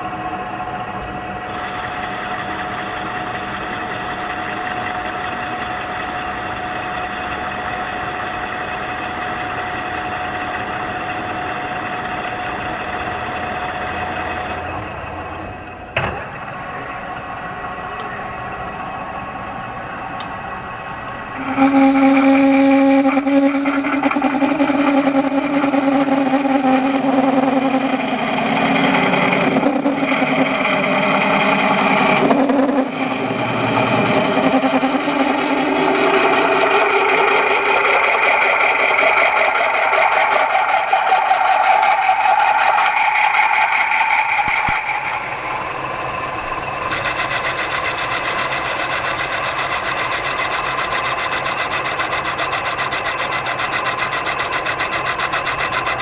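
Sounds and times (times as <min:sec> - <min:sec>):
lathe spinning: 0:00.8 - 0:15.8, 0:18.6 - 0:56.0
drill whining into metal: 0:46.0 - 0:56.0.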